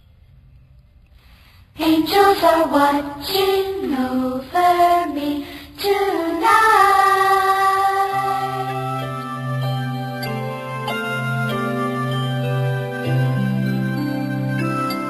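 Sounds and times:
children singing: 1.8s - 9.3s.

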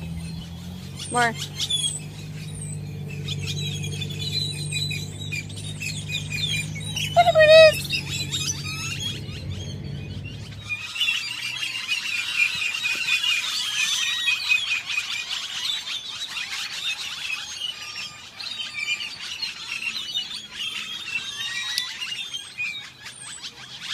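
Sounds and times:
low rumble: 0.0s - 10.8s
small birds chirping: 0.0s - 23.9s.

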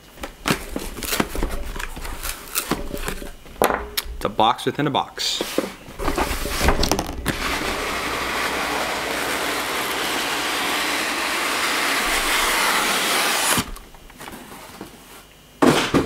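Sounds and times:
cardboard scraping on cardboard: 0.4s - 3.4s, 5.4s - 15.0s.

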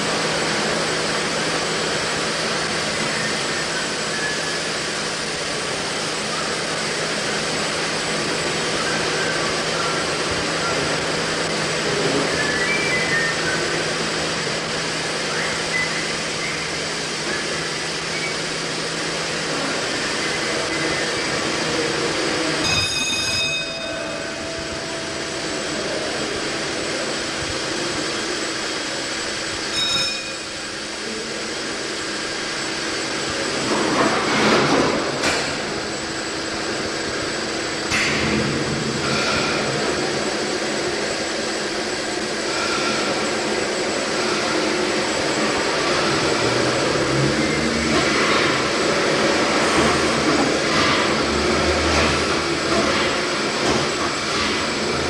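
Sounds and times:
steam engine rushing: 0.0s - 55.0s
ringing metal strikes: 22.6s - 25.9s, 29.7s - 30.7s.

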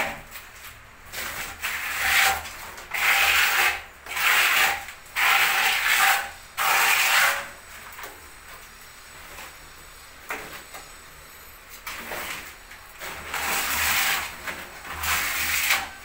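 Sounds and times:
trowel scraping adhesive on wall: 1.1s - 7.6s, 12.0s - 16.0s
trowel scooping from bucket: 11.9s - 16.0s.

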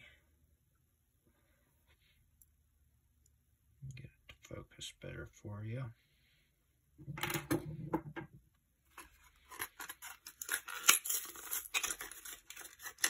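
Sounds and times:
blister package tearing open: 9.8s - 13.0s.

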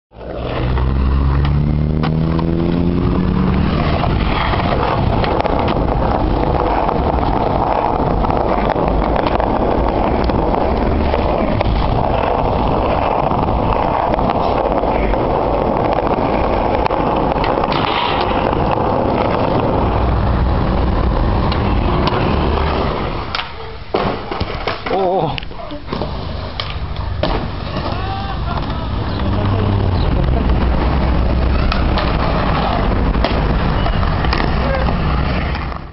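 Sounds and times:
skateboard wheels rolling on concrete: 0.1s - 35.9s
rising tone: 0.2s - 8.2s.

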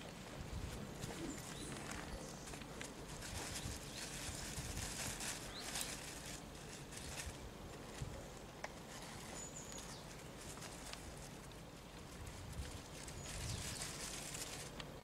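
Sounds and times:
soft rustling: 0.0s - 15.0s.

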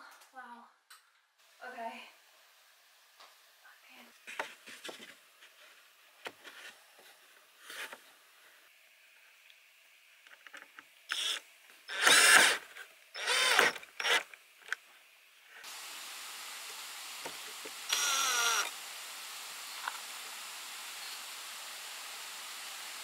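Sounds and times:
cordless drill whirring: 11.1s - 14.3s, 17.2s - 18.8s.

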